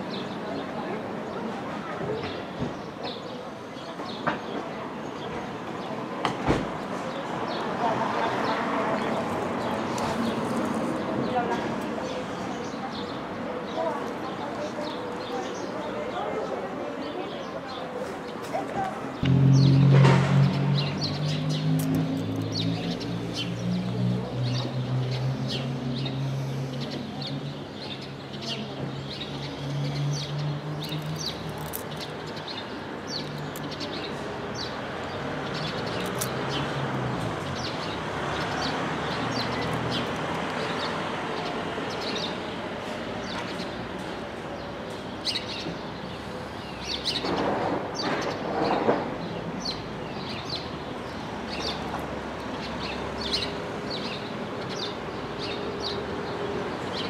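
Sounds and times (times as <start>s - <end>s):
outdoor street noise: 0.0s - 57.0s
passing vehicle rough noise: 19.0s - 28.2s
low hum: 19.2s - 21.6s
small birds chirping: 20.5s - 47.3s, 47.9s - 57.0s.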